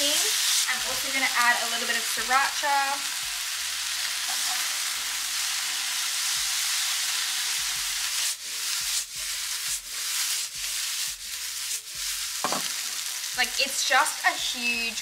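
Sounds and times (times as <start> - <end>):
vegetables sizzling in a frying pan: 0.0 - 15.0
tongs stirring in a pan: 6.1 - 15.0.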